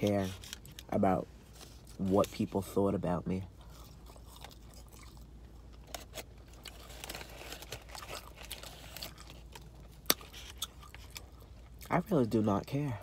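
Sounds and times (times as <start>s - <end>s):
person chewing: 3.6s - 12.0s.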